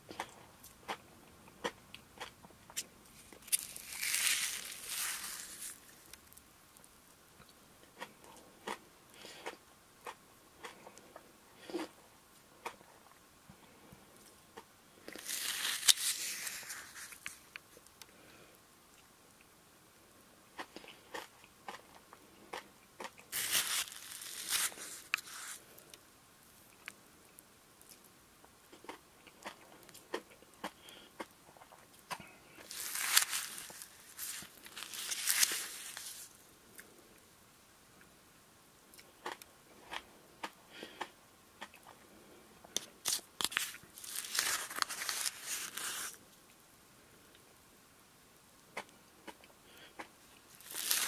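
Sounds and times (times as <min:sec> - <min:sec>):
crushed ice crunching: 0:03.2 - 0:06.4, 0:15.1 - 0:17.4, 0:23.3 - 0:25.6, 0:32.6 - 0:36.3, 0:43.0 - 0:46.2, 0:50.6 - 0:51.0.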